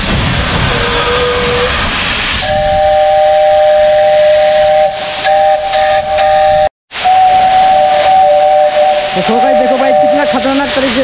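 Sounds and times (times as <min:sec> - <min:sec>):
steam locomotive hissing: 0:00.0 - 0:11.0
two-note steam whistle: 0:02.4 - 0:10.6.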